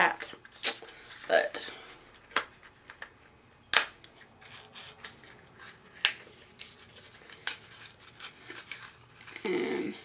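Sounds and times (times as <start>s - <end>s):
soft rubbing of packaging: 4.2s - 10.0s.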